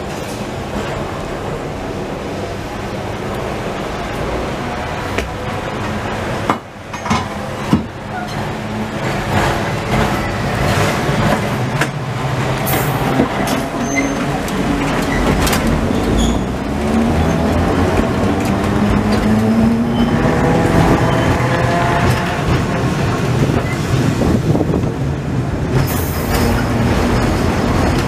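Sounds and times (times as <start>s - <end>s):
tram motor hum: 0.0s - 28.0s
wheels clicking over rail joints: 5.1s - 20.1s.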